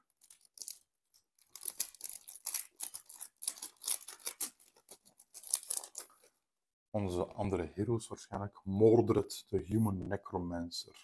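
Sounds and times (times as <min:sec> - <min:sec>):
packaging crinkling and tearing: 0:00.0 - 0:06.3.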